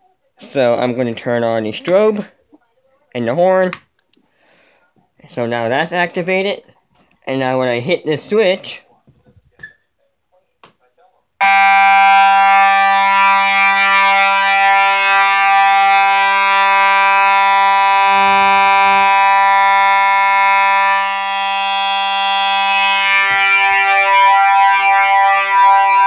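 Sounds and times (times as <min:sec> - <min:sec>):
fire alarm horn tone: 0:11.4 - 0:26.0.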